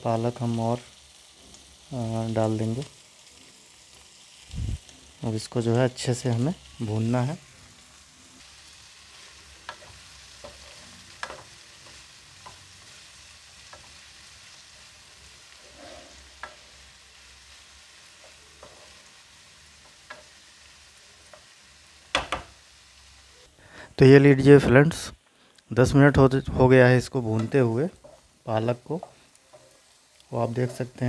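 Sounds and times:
faint sizzle: 0:00.0 - 0:31.0
wooden spatula scraping a pan: 0:09.1 - 0:14.0, 0:14.8 - 0:16.9, 0:18.0 - 0:19.2, 0:27.3 - 0:31.0
sharp knocks on a pan: 0:22.1 - 0:22.5.

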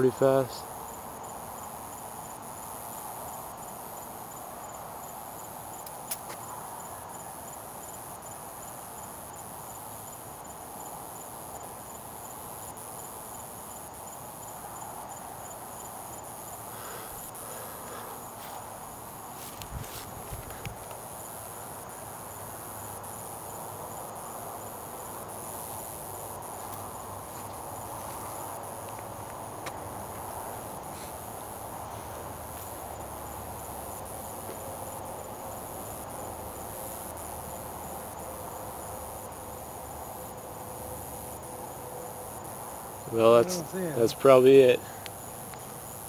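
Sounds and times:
crickets chirping: 0:00.0 - 0:46.0
low background hiss: 0:00.0 - 0:46.0.

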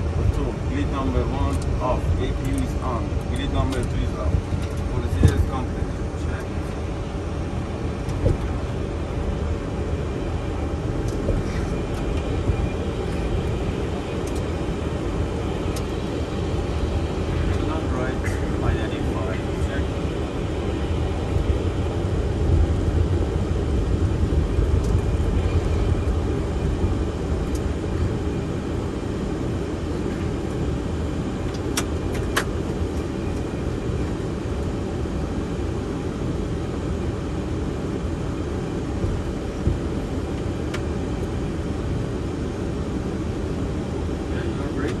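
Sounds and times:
airflow: 0:00.0 - 0:25.3
jet engines idling: 0:00.0 - 0:45.0
wheels rumbling on taxiway: 0:00.0 - 0:45.0.

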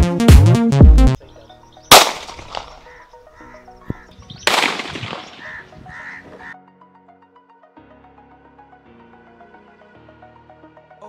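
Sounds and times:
pistol gunshots with echo: 0:01.9 - 0:02.9, 0:04.4 - 0:05.5.

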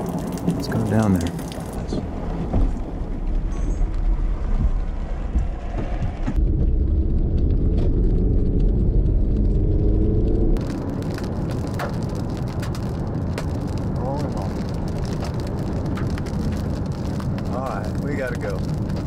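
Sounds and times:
rain pattering on windshield: 0:00.0 - 0:04.9, 0:10.6 - 0:19.0
car engine and road rumble: 0:00.0 - 0:19.0.

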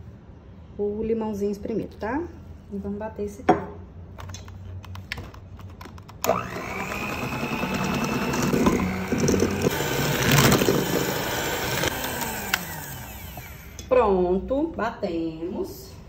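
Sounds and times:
electric hand mixer running: 0:06.2 - 0:13.9.

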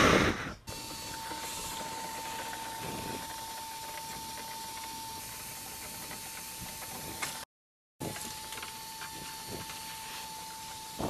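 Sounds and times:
rush of air: 0:00.0 - 0:00.7
motor whining: 0:00.0 - 0:07.4, 0:08.0 - 0:11.0.

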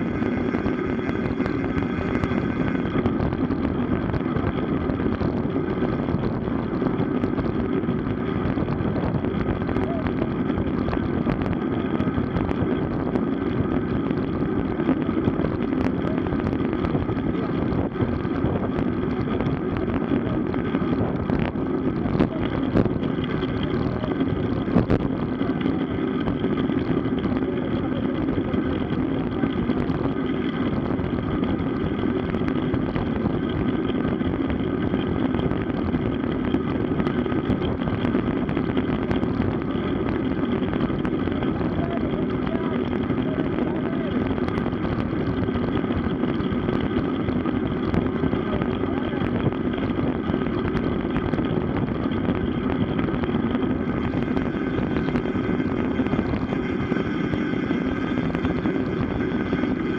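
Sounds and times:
bicycle road noise: 0:00.0 - 0:59.9
rushing wind: 0:00.0 - 0:59.9.

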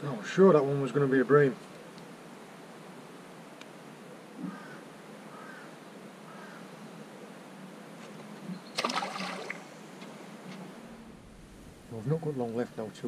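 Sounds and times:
background hiss: 0:00.0 - 0:13.0
bird calling: 0:04.1 - 0:07.0
fish splashing into water: 0:08.8 - 0:09.8.

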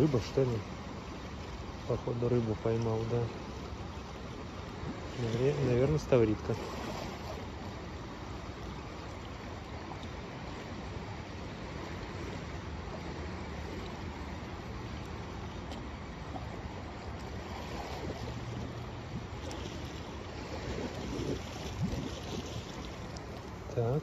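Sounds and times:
sea surf washing: 0:00.0 - 0:24.0
wind on microphone: 0:16.2 - 0:23.3.

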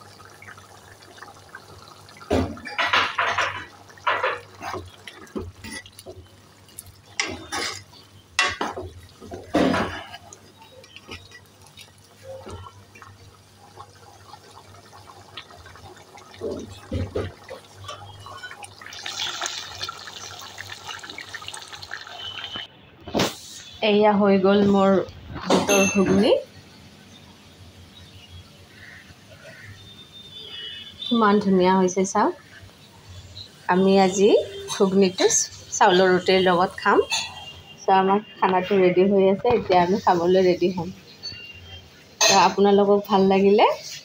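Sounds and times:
thick curry bubbling in a pan: 0:00.0 - 0:22.7, 0:26.5 - 0:31.4.

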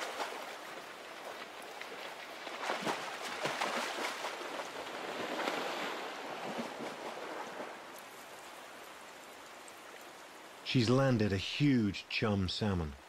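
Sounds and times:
bear splashing through water: 0:00.0 - 0:08.4
river rushing: 0:00.0 - 0:13.0.

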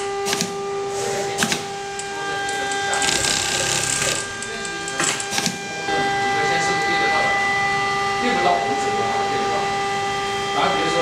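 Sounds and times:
sewing machine whining: 0:01.9 - 0:05.8.

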